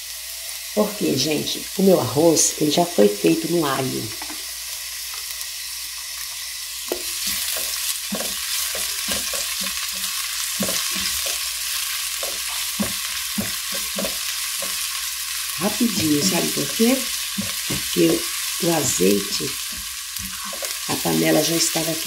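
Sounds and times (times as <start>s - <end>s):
onion sizzling in oil: 0.0s - 22.0s
spatula scraping pan: 6.9s - 21.6s.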